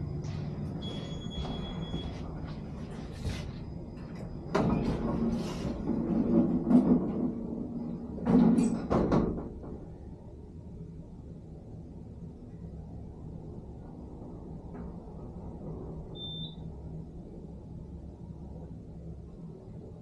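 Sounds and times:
elevator car humming: 0.0 - 20.0
elevator doors sliding closed: 0.6 - 3.5, 4.2 - 9.9
elevator clunks: 0.7 - 2.5, 4.1 - 9.9
elevator beep: 0.7 - 2.6, 16.1 - 16.8.

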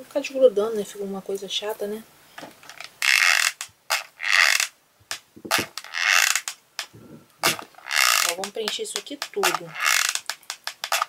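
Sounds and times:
glue gun creaking and ratcheting: 2.5 - 11.0.

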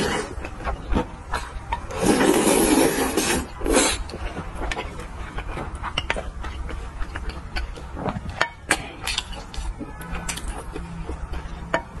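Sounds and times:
wet chewing: 0.0 - 12.0.

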